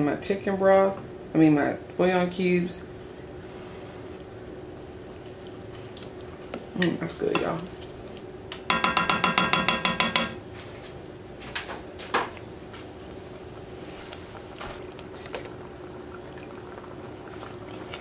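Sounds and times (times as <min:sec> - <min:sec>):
faint steady hum: 0:00.0 - 0:18.0
spoon clattering against saucepan: 0:08.7 - 0:10.4.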